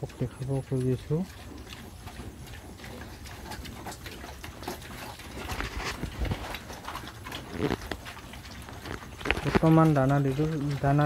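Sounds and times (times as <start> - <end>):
piglets snuffling and chewing: 0.0 - 11.0
snouts clicking in feed: 0.0 - 11.0.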